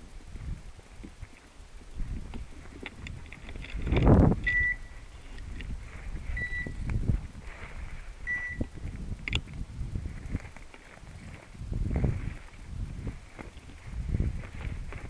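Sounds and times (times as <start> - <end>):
brush rustling and crackling: 0.0 - 15.0
beeper collar high beeps: 4.4 - 5.0, 6.3 - 6.8, 8.2 - 8.7
footsteps through scrub: 5.0 - 15.0.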